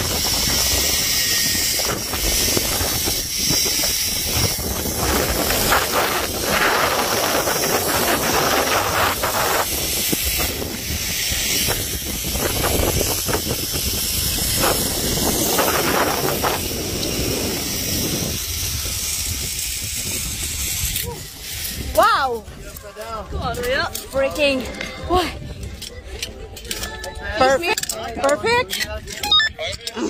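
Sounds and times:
zipline trolley whirring on cable: 0.0 - 22.8
wind rushing on microphone: 0.0 - 27.7.

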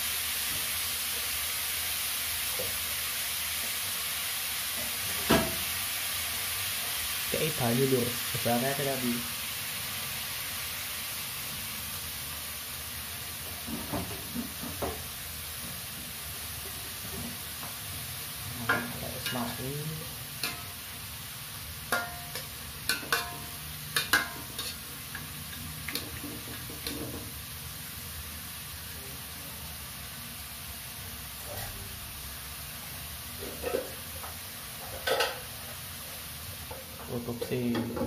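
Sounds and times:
vegetables sizzling in a wok: 0.0 - 38.0
metal spatula scraping a pan: 21.9 - 27.2.

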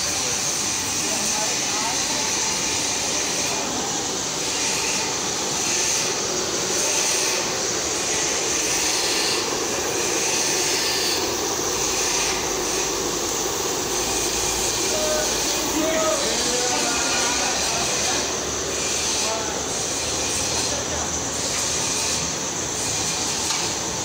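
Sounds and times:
gas burners rushing hiss: 0.0 - 24.0.

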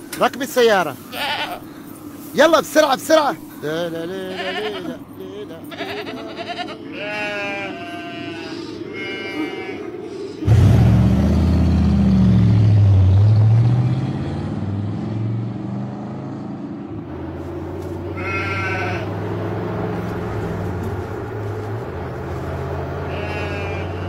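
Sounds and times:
goat bleating: 0.9 - 1.7, 3.6 - 10.0, 17.9 - 19.3, 20.8 - 24.0
vehicle engine revving: 10.4 - 24.0.

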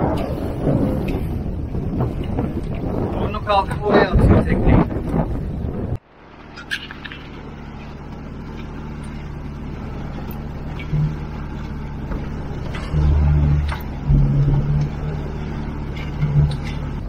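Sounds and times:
choppy sea surges: 0.0 - 6.0
outboard motor running: 0.0 - 17.0.

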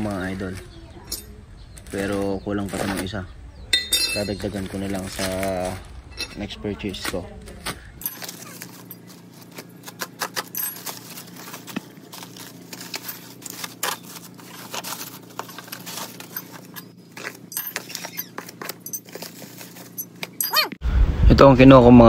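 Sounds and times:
plastic packaging crinkling: 8.0 - 20.4.

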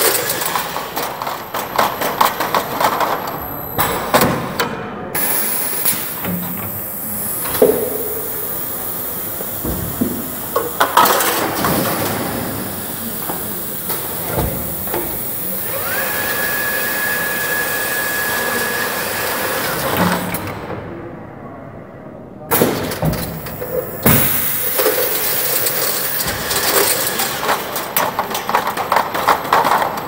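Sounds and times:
machine hiss: 5.2 - 20.5, 22.6 - 27.8
machine clunks: 22.5 - 25.2.

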